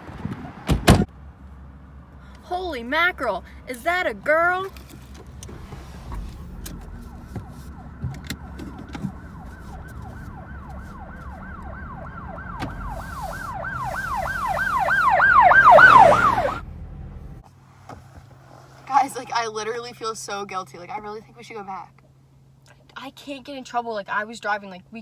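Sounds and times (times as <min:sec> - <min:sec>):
siren yelping: 0:06.2 - 0:16.6.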